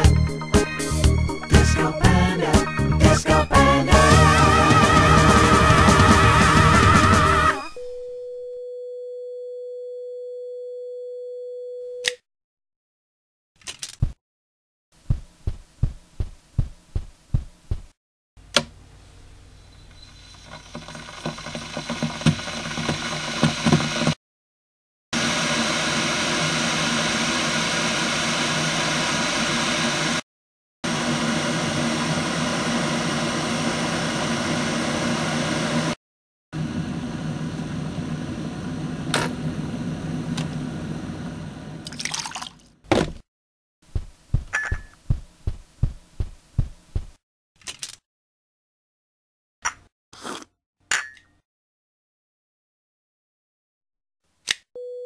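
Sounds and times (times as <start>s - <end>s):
kettle boiling: 20.3s - 24.1s
water poured into a cup: 41.8s - 42.7s.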